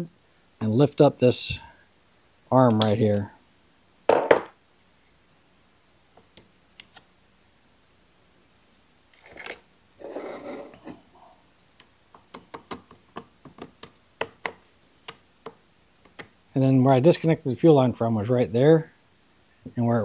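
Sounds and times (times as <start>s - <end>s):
short scraping rub: 10.0s - 11.0s.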